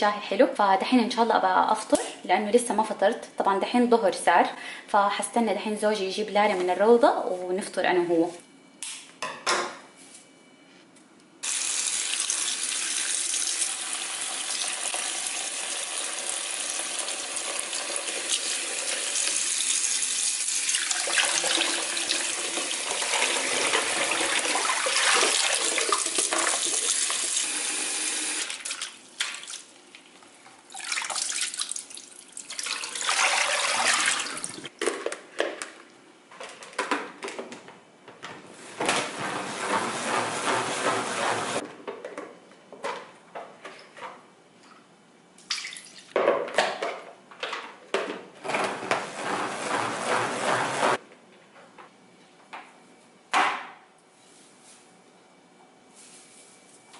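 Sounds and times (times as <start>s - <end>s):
water pouring into a sink: 11.4s - 29.7s, 30.7s - 34.7s.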